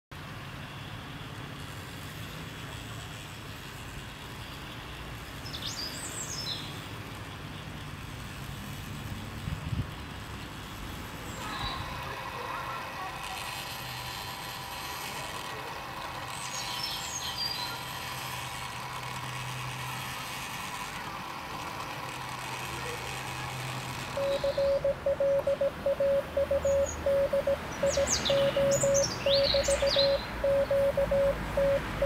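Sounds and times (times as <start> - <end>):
bird chirping: 24.2 - 32.0
low hum: 24.2 - 32.0
morse code beeps: 24.2 - 32.0.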